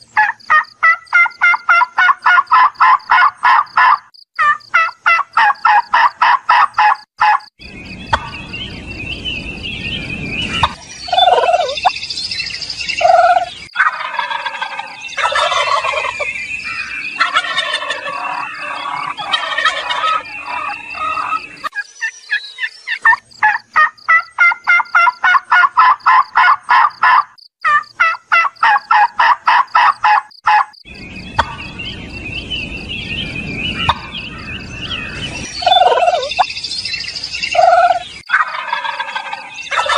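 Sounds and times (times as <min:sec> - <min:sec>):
turkey calls: 0:00.2 - 0:07.5, 0:08.1 - 0:08.5, 0:10.5 - 0:11.9, 0:13.0 - 0:31.8, 0:33.7 - 0:36.5, 0:37.5 - 0:39.9
turkeys gobbling: 0:00.2 - 0:07.5, 0:08.1 - 0:08.4, 0:10.6 - 0:11.9, 0:13.0 - 0:16.3, 0:17.2 - 0:21.8, 0:22.9 - 0:30.8, 0:31.4 - 0:31.6, 0:33.8 - 0:34.2, 0:35.0 - 0:36.5, 0:37.6 - 0:39.9
low rumbling noise: 0:07.6 - 0:11.3, 0:30.9 - 0:36.1.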